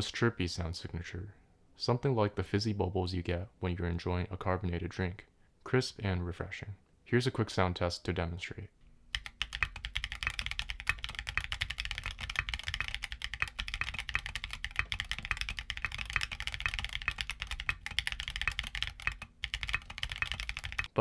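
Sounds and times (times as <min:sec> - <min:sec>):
fast typing on mechanical keyboard: 0:09.1 - 0:21.0.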